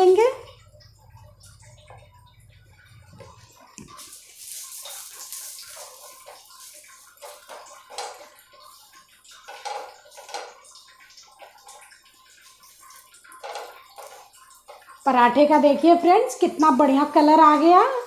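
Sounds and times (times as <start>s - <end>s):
flatbread sizzling on a pan: 3.8s - 15.0s
spatula scraping a pan: 4.3s - 10.7s.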